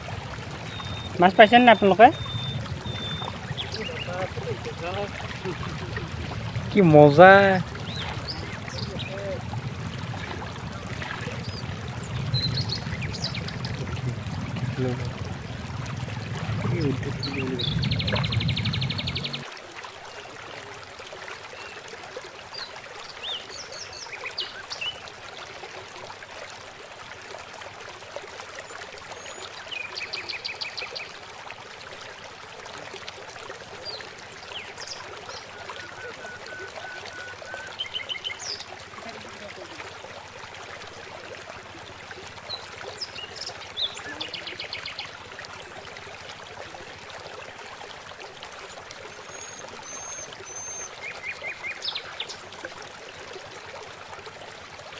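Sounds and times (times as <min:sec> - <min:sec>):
flowing water rushing: 0:00.0 - 0:54.9
small birds chirping: 0:00.6 - 0:09.5, 0:10.2 - 0:15.7, 0:16.6 - 0:19.5, 0:42.4 - 0:45.2.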